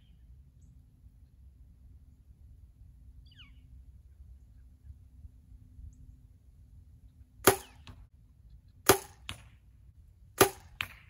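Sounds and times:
arrow thud on target: 7.4s - 8.0s, 8.9s - 9.5s.

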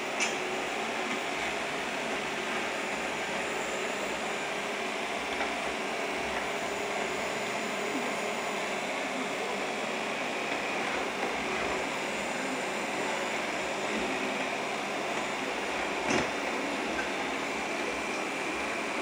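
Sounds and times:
robot vacuum running: 0.0s - 19.0s.

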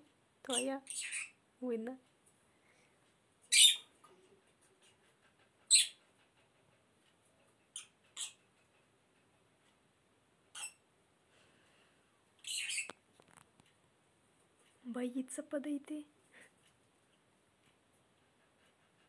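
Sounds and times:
lovebird shrill chirps: 0.5s - 1.4s, 3.5s - 3.9s, 10.5s - 10.8s, 12.4s - 13.0s.

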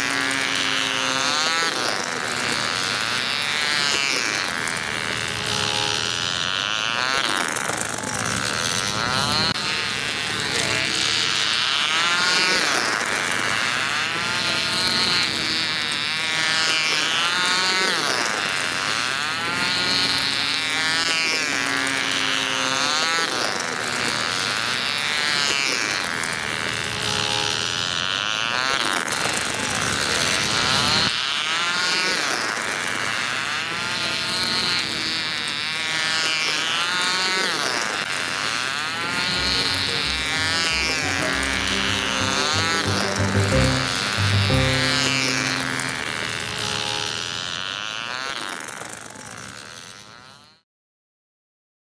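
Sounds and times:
model engines buzzing: 38.2s - 47.6s.

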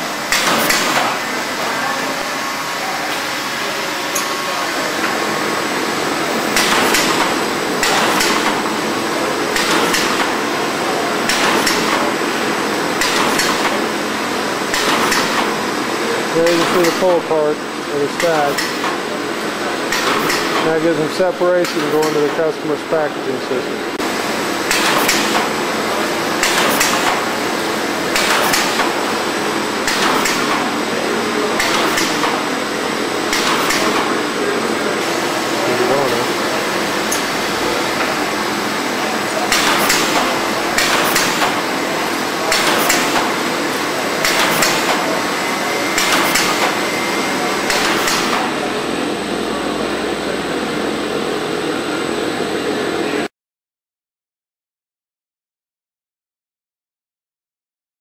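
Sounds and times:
steady machine hum: 0.0s - 53.3s
sharp mechanical clacks: 0.3s - 1.2s, 6.5s - 8.6s, 9.5s - 10.4s, 11.2s - 12.1s, 13.0s - 13.8s, 14.7s - 15.6s, 16.4s - 17.2s, 18.2s - 19.0s, 19.9s - 20.8s, 24.6s - 25.6s, 26.4s - 27.3s, 28.1s - 29.0s, 29.8s - 30.7s, 31.6s - 32.5s, 33.3s - 34.2s, 39.4s - 41.7s, 42.4s - 45.2s, 45.9s - 46.8s, 47.6s - 48.5s
machine cutting strokes with clicks: 9.5s - 10.4s, 13.0s - 13.8s, 14.7s - 15.6s, 26.4s - 27.3s, 31.6s - 32.5s, 33.3s - 34.2s, 39.5s - 41.7s, 42.4s - 48.5s.

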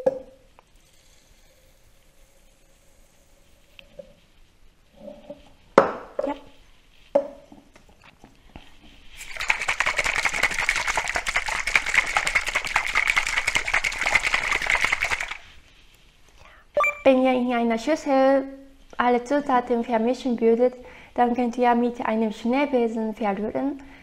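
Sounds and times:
shaker rattling: 9.1s - 15.6s.

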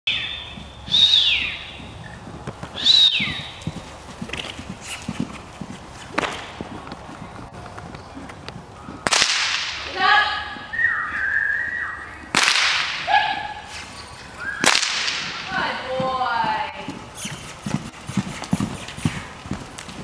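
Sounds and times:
high whistle-like calls: 0.1s - 1.9s, 2.8s - 3.7s, 10.6s - 12.3s, 13.1s - 14.7s
horse hoofbeats on sand: 0.1s - 9.2s, 15.1s - 20.0s
sharp cracks: 6.1s - 10.0s, 12.3s - 13.1s, 14.6s - 15.8s.

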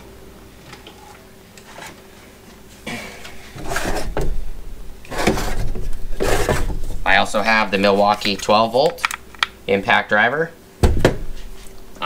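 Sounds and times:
tools rubbing and knocking: 3.4s - 4.3s, 5.1s - 6.9s.

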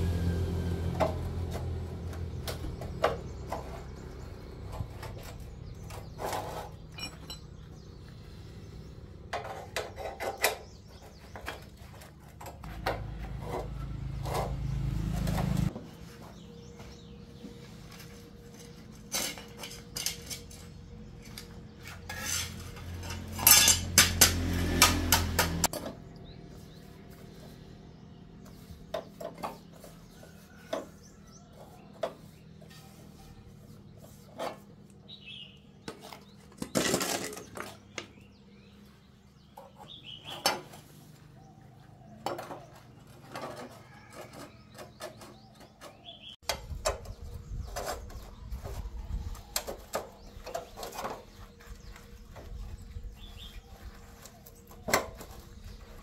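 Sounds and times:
metal mold parts clinking and scraping: 1.6s - 8.0s, 9.1s - 15.8s, 17.4s - 26.0s, 34.0s - 38.4s, 42.0s - 56.0s.

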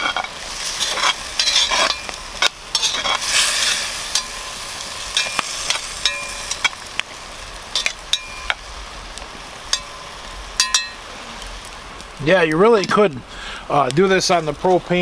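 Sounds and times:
metal utensil clinking on iron pot: 0.0s - 3.4s, 4.1s - 4.5s, 5.1s - 6.8s, 7.8s - 8.6s, 9.7s - 10.0s, 10.6s - 11.0s
hot oil sizzling in a pot: 0.0s - 15.0s.

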